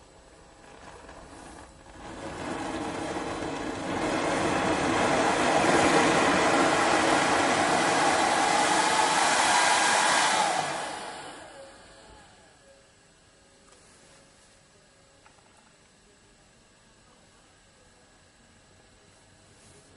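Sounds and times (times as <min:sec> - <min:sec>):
hair dryer fan motor blowing: 0:00.0 - 0:12.6.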